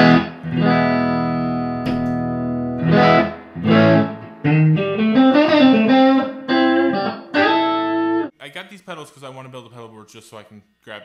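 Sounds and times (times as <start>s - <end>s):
electric guitar with vibrato effect: 0.0s - 8.3s.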